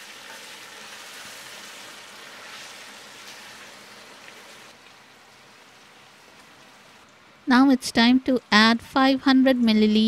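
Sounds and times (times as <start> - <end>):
food sizzling in a pot: 0.0 - 4.8.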